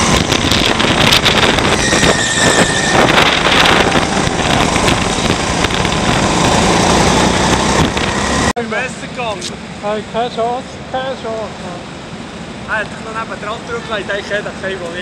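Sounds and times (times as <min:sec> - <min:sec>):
tyre squeal: 0:01.6 - 0:04.0
kart engine running hard: 0:03.1 - 0:08.5.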